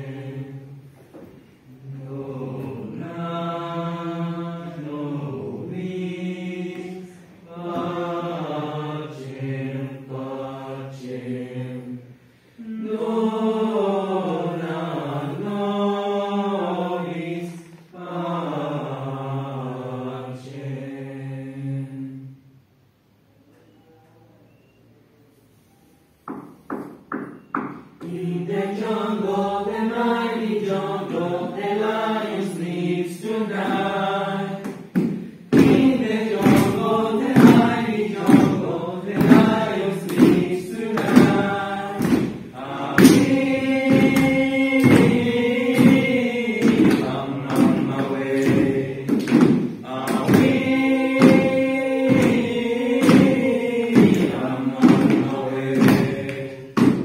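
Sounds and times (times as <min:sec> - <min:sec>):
choir singing a cappella: 0:00.0 - 0:22.6, 0:27.7 - 0:57.0
sharp percussive hits: 0:34.6 - 0:57.0.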